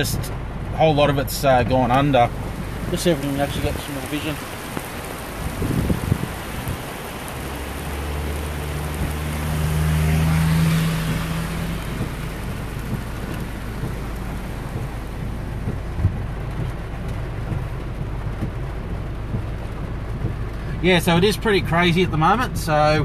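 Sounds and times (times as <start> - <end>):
car engine hum: 0.0 - 23.0
heavy rain: 0.0 - 23.0
water spray hiss: 2.2 - 15.8.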